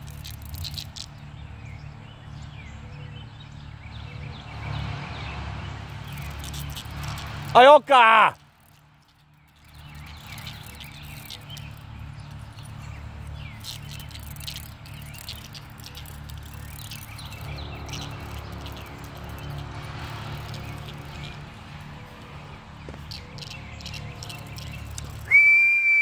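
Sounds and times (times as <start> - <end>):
cicada buzzing squawks: 0.0 - 1.4, 5.9 - 8.8, 9.5 - 26.0.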